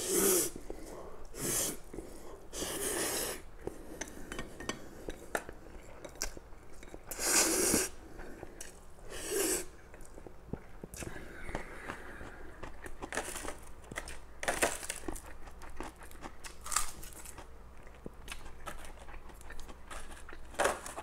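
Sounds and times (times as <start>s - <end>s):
person slurping noodles: 0.0s - 0.6s, 1.4s - 1.8s, 2.6s - 3.4s, 7.1s - 7.9s
chewing: 14.9s - 21.0s.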